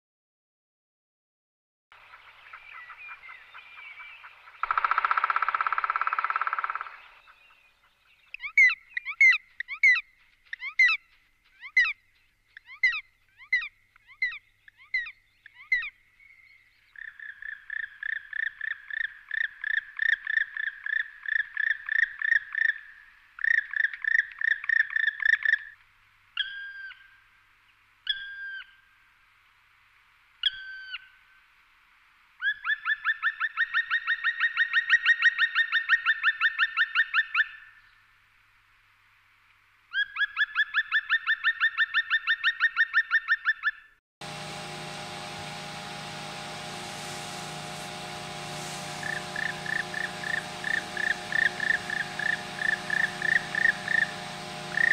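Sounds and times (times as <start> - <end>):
woodpecker drawn-out calls: 2.2 - 10.0
woodpecker ringing calls: 4.6 - 7.5.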